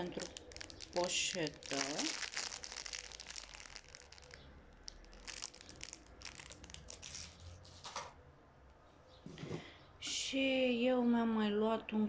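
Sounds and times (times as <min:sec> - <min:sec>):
plastic wrapper crinkling: 0:00.0 - 0:07.9.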